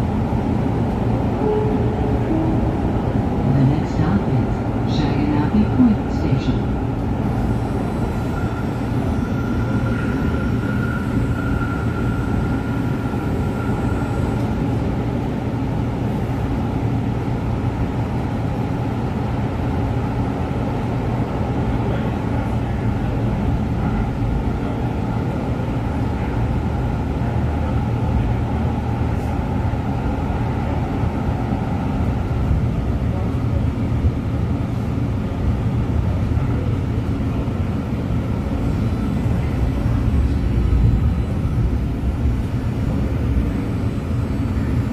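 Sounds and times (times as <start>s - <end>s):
rumble of train wheels and motors: 0.0s - 44.9s.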